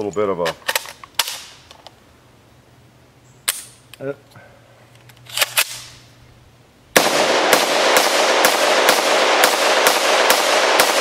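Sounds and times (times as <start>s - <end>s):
rifle gunshots: 6.9s - 11.0s
ringing echoes of gunshots: 7.0s - 11.0s.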